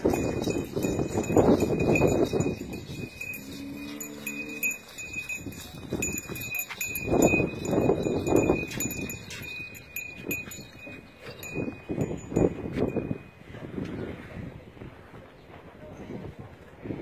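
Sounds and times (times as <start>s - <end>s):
hooves scuffing on dirt: 0.0s - 13.3s
small bells jingling: 0.0s - 13.4s
bull lowing: 2.3s - 5.4s.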